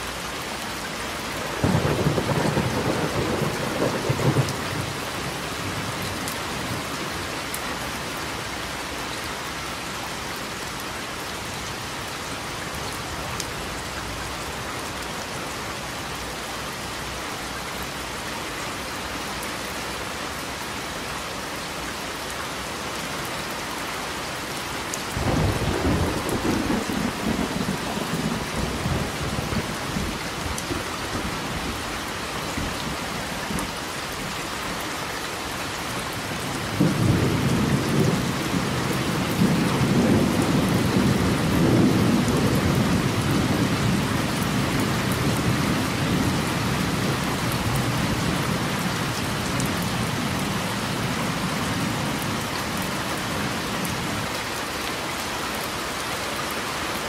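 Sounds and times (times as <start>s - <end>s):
steady rain: 0.0s - 57.0s
thunder rumbling: 1.4s - 6.0s.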